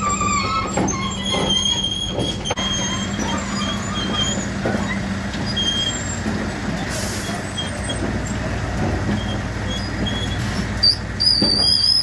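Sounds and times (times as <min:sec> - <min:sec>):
high metallic squeals: 0:00.0 - 0:06.3, 0:09.2 - 0:12.0
truck engine hum: 0:00.0 - 0:12.0.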